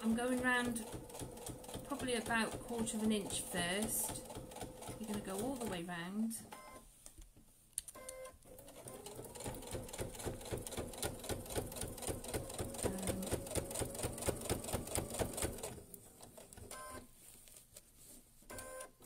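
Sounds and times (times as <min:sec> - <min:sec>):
electric sewing machine stitching: 0:08.5 - 0:16.8.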